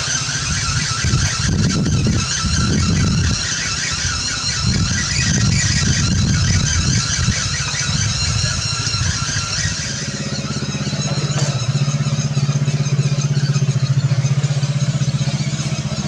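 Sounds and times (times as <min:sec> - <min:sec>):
low throbbing drone: 0:00.0 - 0:16.0.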